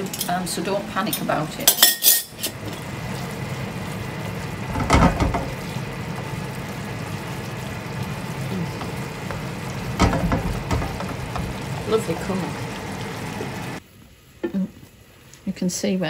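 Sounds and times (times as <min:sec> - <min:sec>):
food sizzling in pans: 0:00.0 - 0:16.0
pan knocking: 0:04.6 - 0:05.7, 0:08.7 - 0:12.5.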